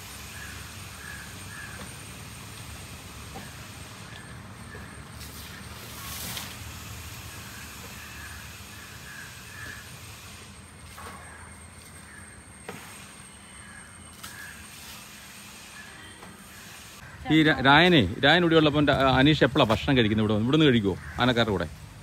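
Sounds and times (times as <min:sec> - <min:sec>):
crows cawing: 0:00.3 - 0:02.3, 0:03.4 - 0:05.9, 0:07.4 - 0:10.0, 0:11.0 - 0:12.4, 0:13.4 - 0:15.0, 0:15.8 - 0:17.6, 0:20.8 - 0:21.7.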